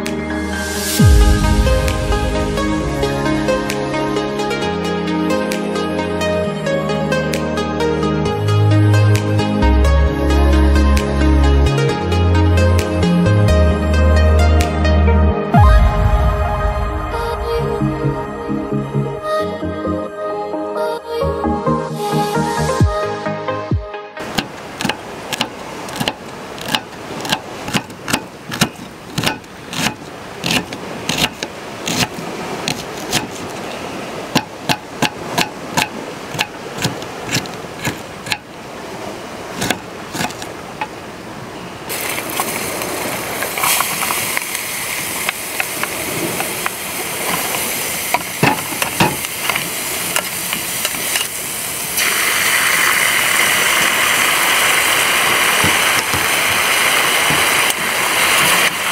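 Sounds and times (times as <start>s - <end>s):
knife chopping on wooden board: 24.3s - 32.1s, 32.7s - 33.4s, 34.4s - 38.4s, 39.6s - 40.4s.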